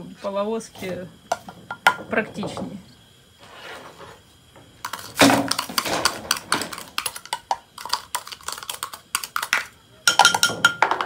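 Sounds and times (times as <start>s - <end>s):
spoon clinking against plastic cups: 4.8s - 11.0s.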